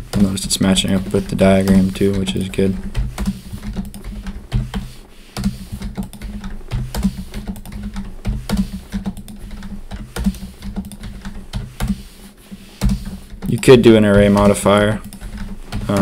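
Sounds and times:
computer keyboard clicks: 0.1 - 12.1.

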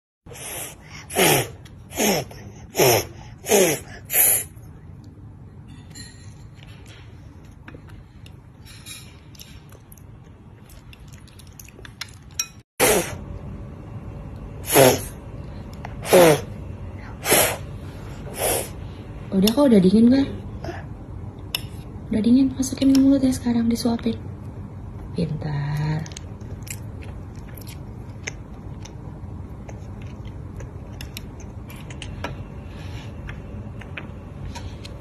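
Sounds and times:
toddler blowing puffs of air: 0.3 - 4.5, 17.2 - 17.6.

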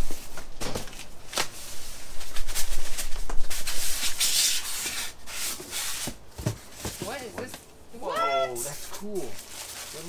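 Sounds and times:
cardboard scraping and rubbing: 1.4 - 7.2.

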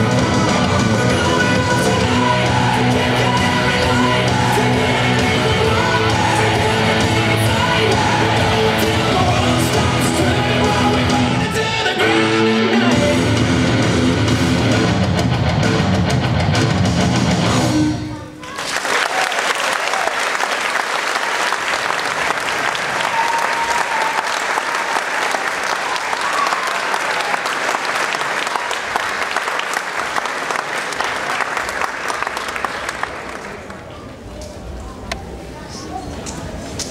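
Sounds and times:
music: 0.0 - 18.3
audience applauding: 18.4 - 33.9.

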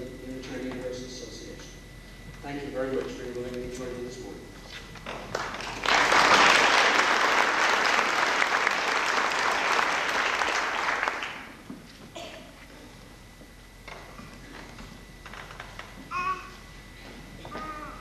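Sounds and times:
congregation applauding: 5.1 - 11.6.

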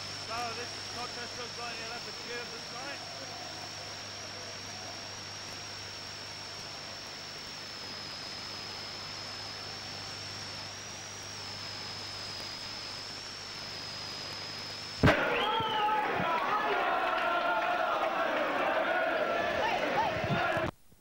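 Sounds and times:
high-pitched whine: 0.0 - 18.3.

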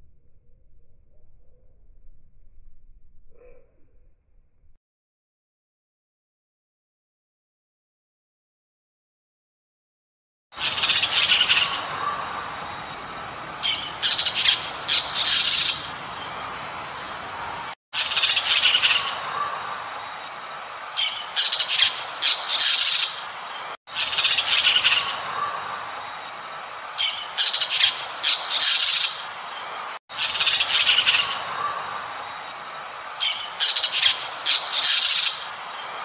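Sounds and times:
parrot squawking: 10.6 - 19.8, 21.0 - 23.2, 23.9 - 25.8, 27.0 - 29.2, 30.2 - 32.0, 33.2 - 35.5.

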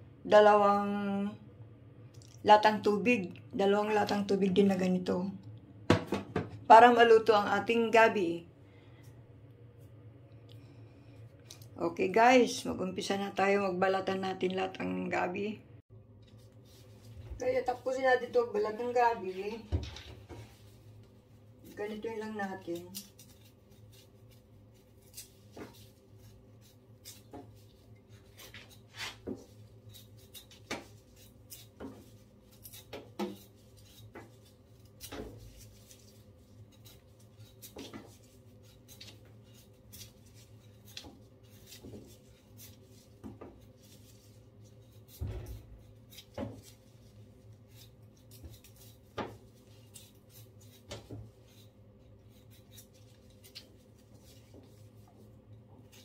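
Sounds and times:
knife scraping root skin: 21.6 - 56.0.

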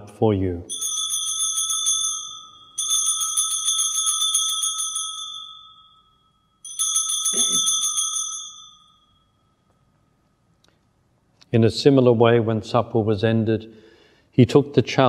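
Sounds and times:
altar bells ringing rapidly: 0.7 - 9.6.

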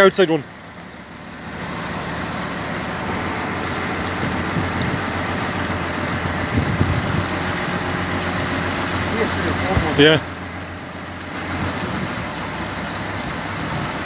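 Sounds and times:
boat engine humming: 0.0 - 14.0
water noise: 0.0 - 14.0
wind over microphone: 6.1 - 7.7.

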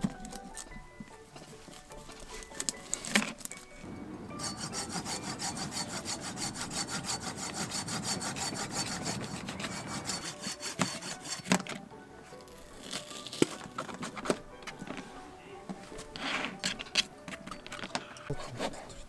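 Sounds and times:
hand saw cutting wood: 4.3 - 11.8.

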